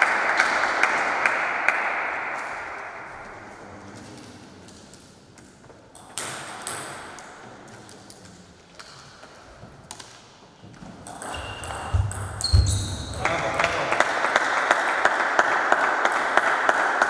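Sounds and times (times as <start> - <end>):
applause: 0.0 - 2.6, 13.2 - 17.0
table tennis ball bouncing: 11.0 - 13.2.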